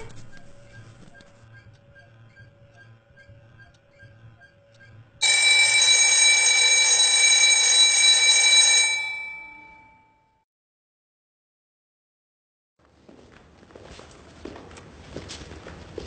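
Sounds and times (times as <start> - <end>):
school bell ringing: 5.2 - 10.4.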